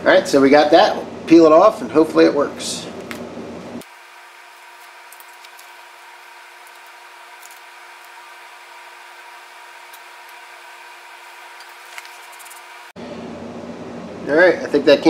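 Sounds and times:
fan hum: 0.0 - 15.0
masking tape peeling: 3.8 - 12.9.

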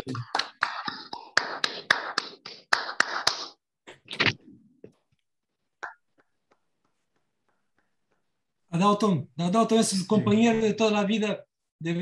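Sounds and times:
people clapping: 0.0 - 3.6.

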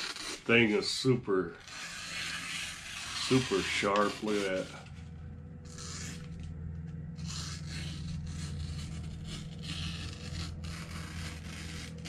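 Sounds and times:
steady low hum: 0.0 - 12.0
knife slicing paper: 1.6 - 4.9, 7.2 - 12.0.

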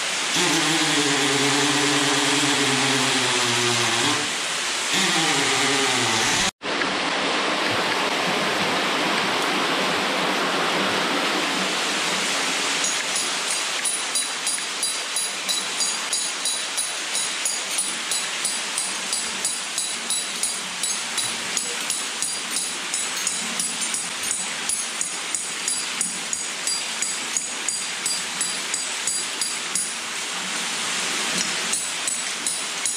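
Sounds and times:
hammer striking metal bolt: 12.9 - 29.9.

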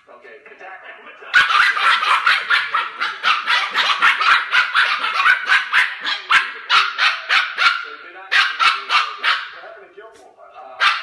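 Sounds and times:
puppies barking rapidly: 1.3 - 9.6, 10.8 - 11.0.

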